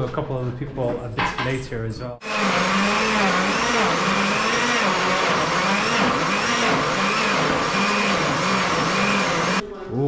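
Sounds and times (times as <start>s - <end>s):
electric blender running: 2.2s - 9.6s.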